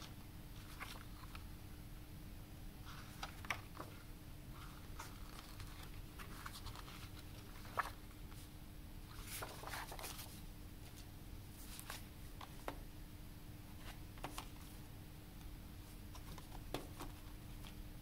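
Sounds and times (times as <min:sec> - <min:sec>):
paper and cardboard rustling: 0:00.0 - 0:01.4, 0:02.9 - 0:08.4, 0:09.1 - 0:11.0, 0:11.6 - 0:12.8
steady low hum: 0:00.0 - 0:18.0.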